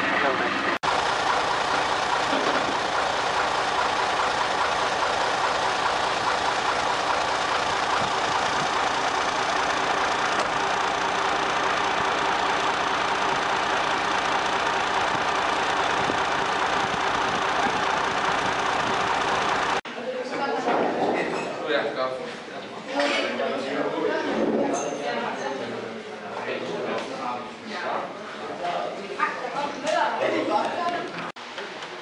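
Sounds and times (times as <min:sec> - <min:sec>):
fire truck engine droning: 0:00.6 - 0:19.8.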